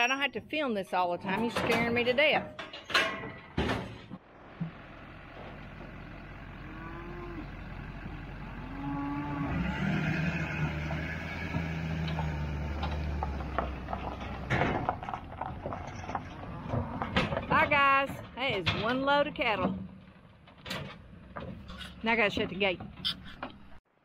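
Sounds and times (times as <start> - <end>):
cattle mooing: 6.6 - 11.0.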